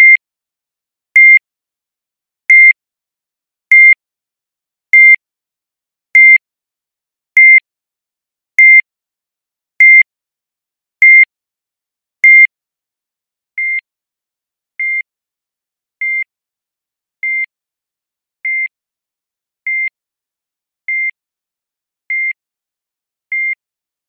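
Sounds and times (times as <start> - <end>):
heart monitor beeping: 1.2 - 1.4, 2.5 - 2.8, 3.7 - 3.9, 5.0 - 5.2, 7.4 - 7.6, 9.8 - 10.1, 12.2 - 12.5.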